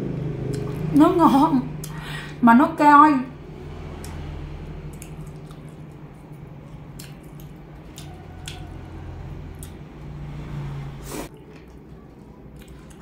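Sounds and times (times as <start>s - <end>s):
wet mouth chewing sounds: 0.5s - 0.9s, 3.9s - 10.2s, 11.1s - 13.0s.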